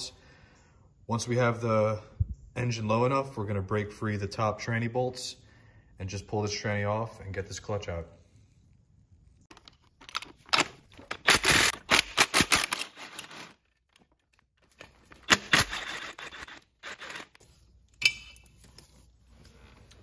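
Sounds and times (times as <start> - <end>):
metal tools and bolts clinking: 9.5 - 18.8.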